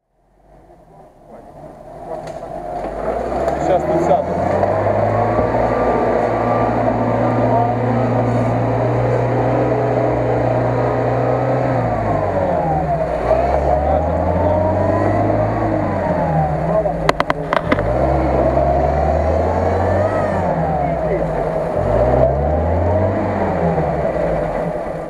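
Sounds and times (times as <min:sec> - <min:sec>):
off-road vehicle engine revving: 0:00.3 - 0:25.0
sharp knocks: 0:17.1 - 0:18.0.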